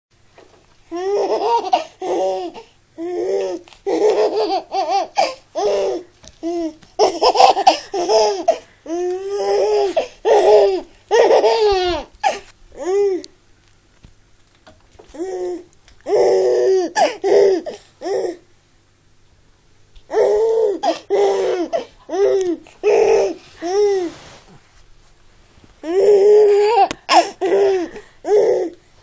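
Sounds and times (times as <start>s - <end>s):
baby laughing: 0.9s - 13.2s, 15.2s - 18.4s, 20.1s - 24.1s, 25.8s - 28.8s.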